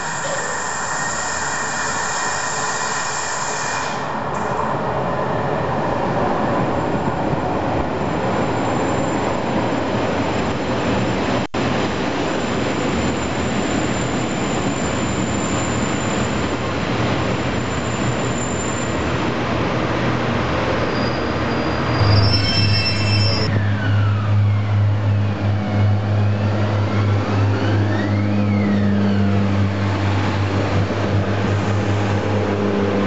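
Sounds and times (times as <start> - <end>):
train engine and wheels rumbling: 0.0 - 33.0
thin high squeal: 20.9 - 23.6.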